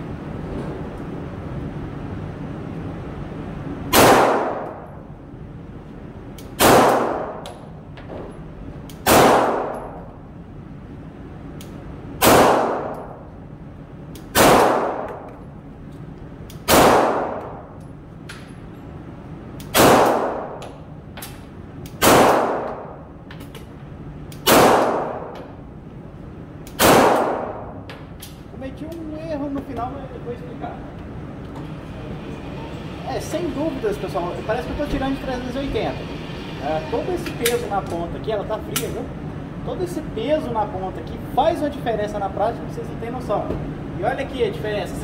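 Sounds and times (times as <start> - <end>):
pistol shots with echo: 3.9 - 4.8, 6.6 - 7.4, 9.0 - 10.1, 12.2 - 13.2, 14.3 - 15.3, 16.7 - 17.7, 19.7 - 20.6, 22.0 - 23.0, 24.4 - 25.4, 26.8 - 27.8.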